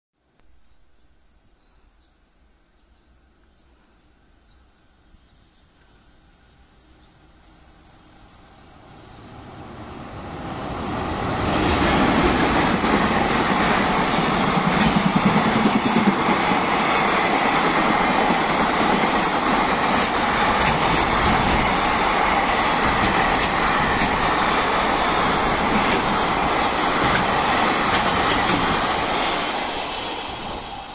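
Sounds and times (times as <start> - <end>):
freight train wheels rumbling on rails: 7.9 - 30.9.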